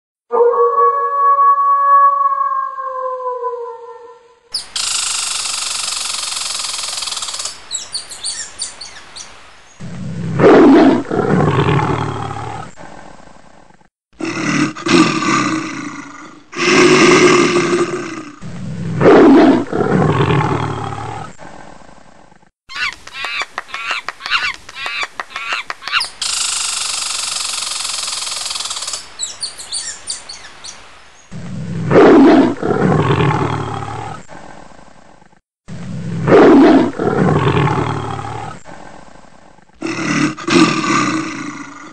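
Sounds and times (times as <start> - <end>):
large animal roaring: 9.8 - 13.2, 14.2 - 21.7, 31.4 - 34.7, 35.7 - 39.0, 39.8 - 41.9.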